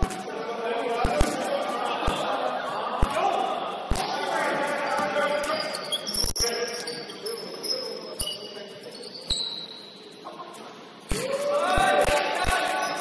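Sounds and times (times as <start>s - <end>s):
sneaker squeaks: 4.7s - 10.3s.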